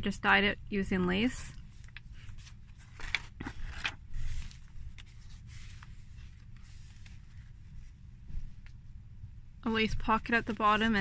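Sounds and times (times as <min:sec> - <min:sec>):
steady low hum: 0:00.0 - 0:11.0
paper page rustling: 0:01.5 - 0:08.8.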